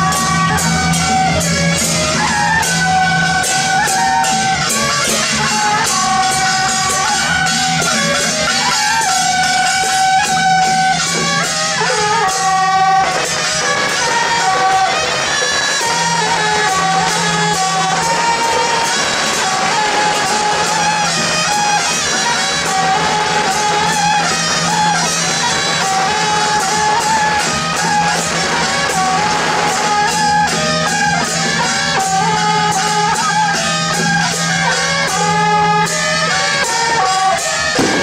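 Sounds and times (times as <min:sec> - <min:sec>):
drum and cymbal strikes: 0:00.0 - 0:38.0
brass horns playing melody: 0:34.7 - 0:38.0.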